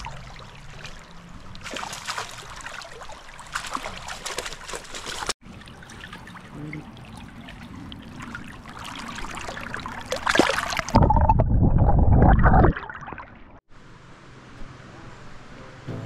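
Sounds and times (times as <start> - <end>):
river water splashing and trickling: 0.0 - 11.2
muffled underwater rush: 5.4 - 13.6.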